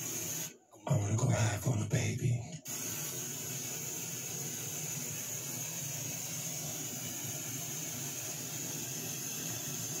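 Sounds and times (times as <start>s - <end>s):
steady hiss: 0.0s - 0.6s, 2.6s - 10.0s.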